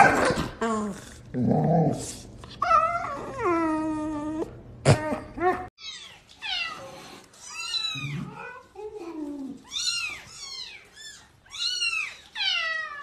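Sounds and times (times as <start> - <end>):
puppy whining howl: 2.6 - 6.1.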